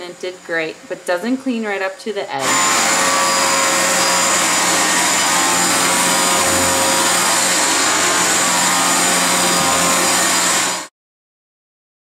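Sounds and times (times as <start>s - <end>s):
vacuum cleaner running on carpet: 2.4s - 10.9s.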